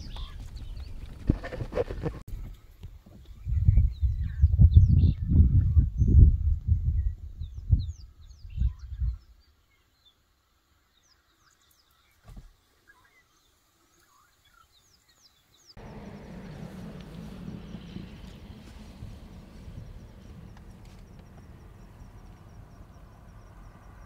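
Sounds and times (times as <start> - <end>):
low thuds: 15.8 - 24.0
steady low rumble: 15.8 - 24.0.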